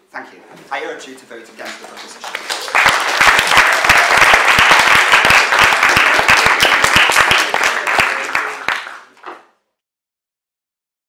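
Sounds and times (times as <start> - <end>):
audience applauding: 1.6 - 9.4.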